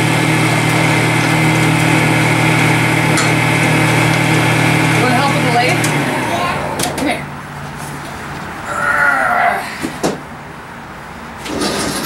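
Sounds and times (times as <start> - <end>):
turning tool shaving wood: 0.0 - 6.3
wood lathe motor hum: 0.0 - 7.0.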